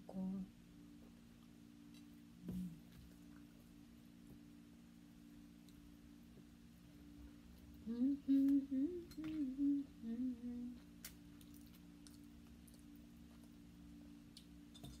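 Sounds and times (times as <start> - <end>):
steady low hum: 0.0 - 15.0
woman humming a tune: 2.4 - 3.0, 7.8 - 10.9.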